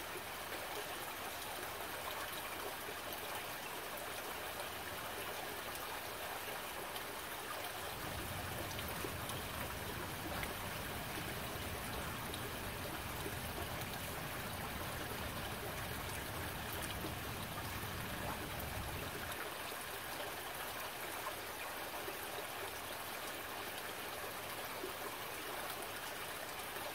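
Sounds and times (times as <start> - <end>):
stream trickling over rocks: 0.0 - 26.9.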